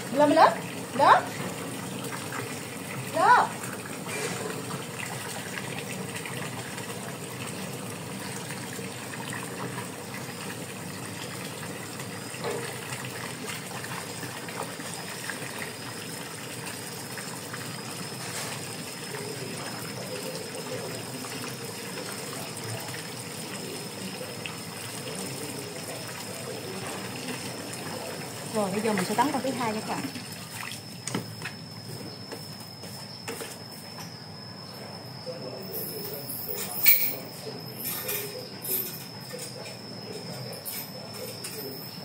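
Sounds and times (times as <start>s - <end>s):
hose water pouring into basin: 0.0s - 31.2s.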